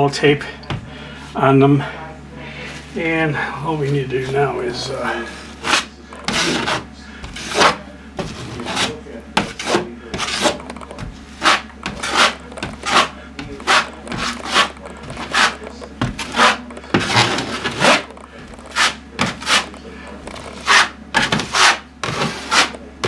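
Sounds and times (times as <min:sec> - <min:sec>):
taping knife scraping wall: 0:05.2 - 0:23.0.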